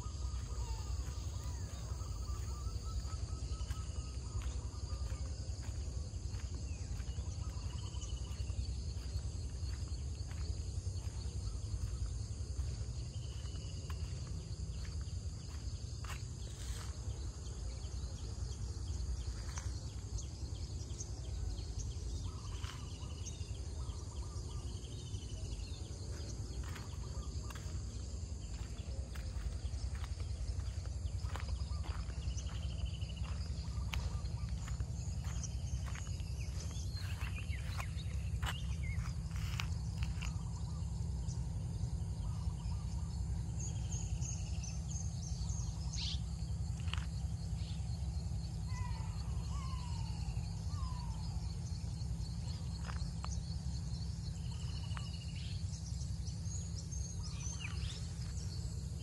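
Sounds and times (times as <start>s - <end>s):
insects buzzing: 0.0s - 59.0s
bird chirps: 28.4s - 41.4s.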